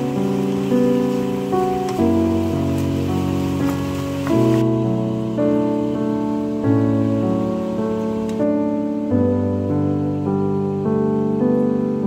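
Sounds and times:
keyboard chords: 0.0 - 12.0.

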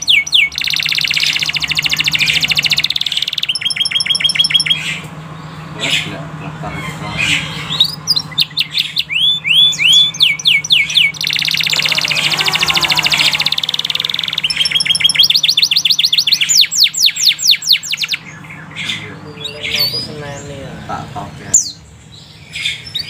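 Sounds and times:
canary singing: 0.0 - 23.0.

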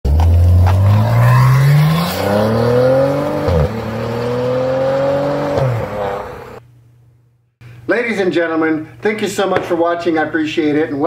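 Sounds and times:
car engine accelerating hard: 0.1 - 6.6.

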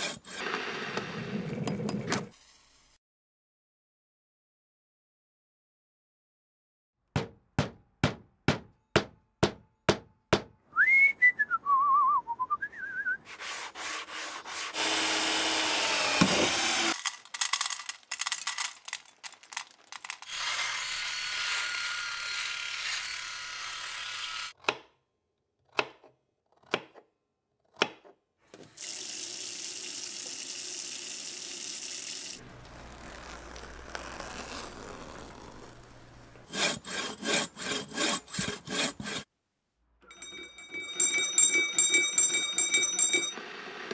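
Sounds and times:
hand saw cutting log: 0.0 - 0.8, 13.3 - 17.0, 36.4 - 39.3
rising and falling whistle: 10.8 - 13.2.

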